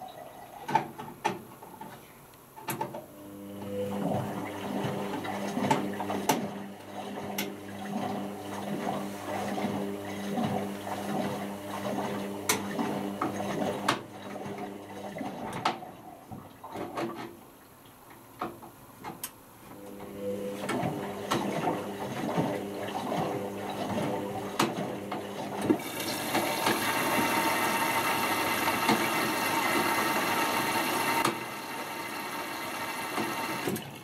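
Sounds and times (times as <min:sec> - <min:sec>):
washing machine motor hum: 0:02.7 - 0:17.2, 0:19.5 - 0:34.0
water sloshing in drum: 0:04.0 - 0:18.8, 0:20.5 - 0:31.4.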